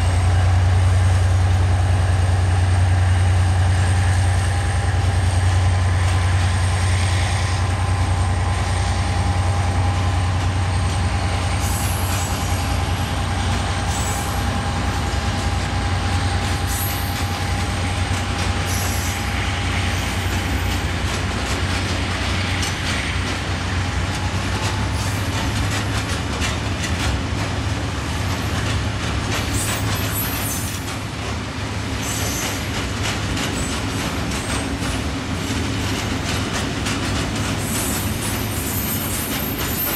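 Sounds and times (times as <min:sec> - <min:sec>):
diesel locomotive engine drone: 0:00.0 - 0:39.9
train wheels clattering on rails: 0:00.0 - 0:39.9
thin wheel squeal: 0:37.6 - 0:39.9.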